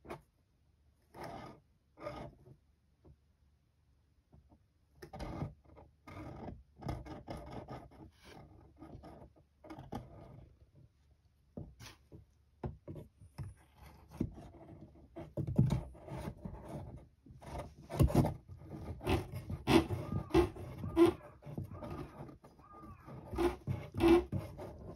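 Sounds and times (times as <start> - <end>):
paper strip scraping on wood: 16.0 - 24.9.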